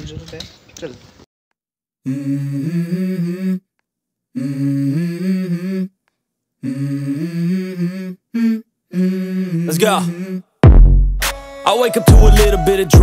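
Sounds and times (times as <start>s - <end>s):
person humming a melody: 2.0s - 3.7s, 4.3s - 6.0s, 6.6s - 10.5s, 11.7s - 13.0s.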